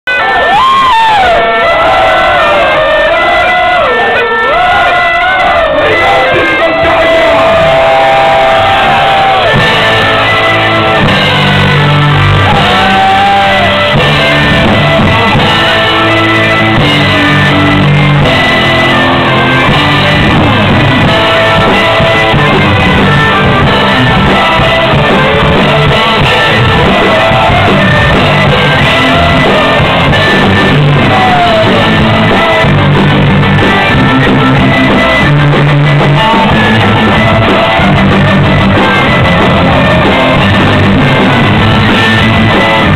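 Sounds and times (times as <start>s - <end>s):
shouted vocals: 0.1s - 16.0s, 20.1s - 33.0s
electric guitars: 0.1s - 42.9s.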